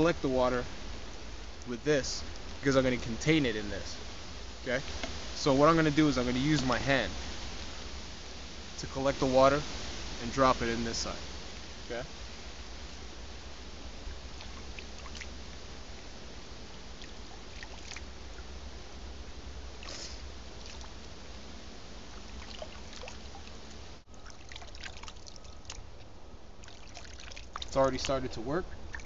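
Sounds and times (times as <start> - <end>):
steady hiss: 0.0 - 29.0
water splashing and trickling: 14.0 - 16.2, 16.8 - 18.6, 19.7 - 21.2, 22.1 - 29.0.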